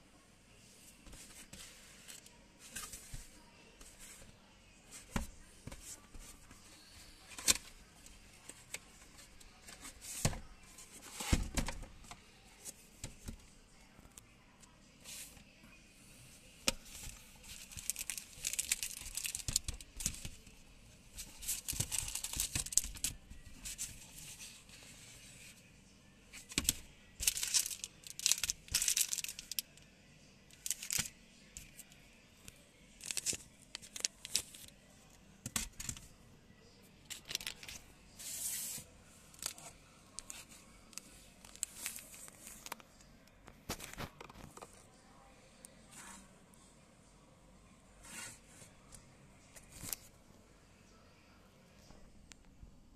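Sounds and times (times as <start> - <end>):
plastic crinkling: 16.9 - 20.4, 26.6 - 29.6.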